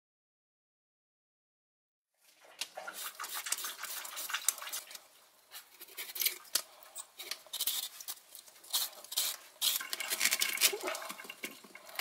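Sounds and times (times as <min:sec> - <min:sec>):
vegetable peeler scraping skin: 0:07.2 - 0:10.3.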